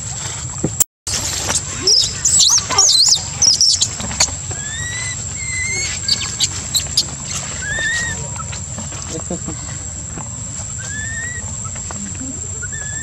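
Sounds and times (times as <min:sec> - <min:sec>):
baby monkey crying: 0:01.3 - 0:08.7, 0:10.8 - 0:13.0.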